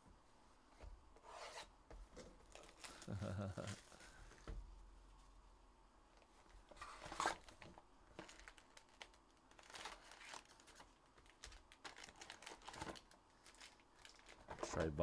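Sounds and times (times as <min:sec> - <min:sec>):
wrapped boxes crinkling: 0:06.7 - 0:15.0.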